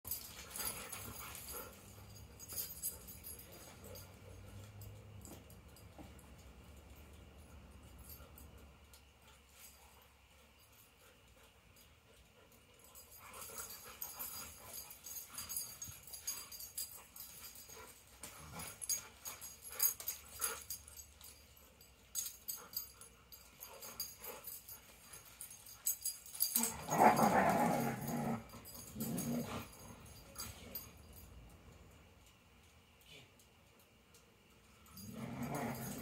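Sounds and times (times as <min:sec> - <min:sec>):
dog play growling: 0:17.7 - 0:19.0, 0:26.3 - 0:30.9, 0:34.8 - 0:36.0.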